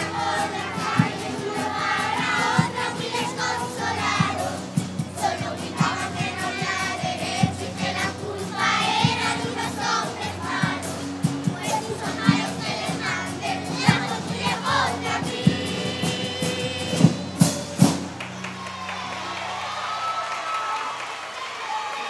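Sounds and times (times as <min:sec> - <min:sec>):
children singing in unison: 0:00.0 - 0:17.6
acoustic guitar: 0:00.0 - 0:18.9.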